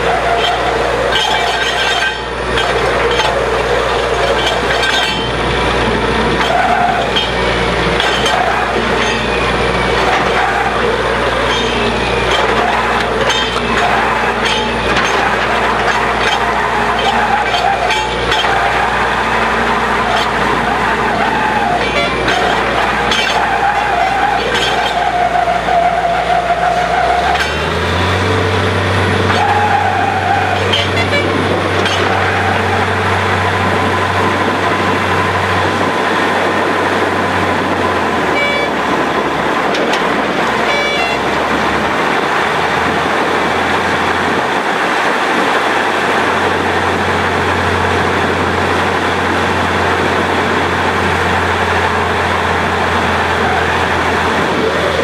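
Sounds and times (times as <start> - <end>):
drilling rig engine drone: 0.0 - 55.0.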